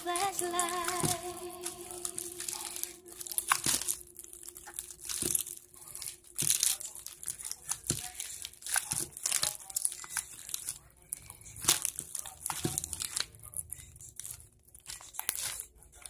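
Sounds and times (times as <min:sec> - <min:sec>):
hands kneading wet slime: 0:02.1 - 0:13.4.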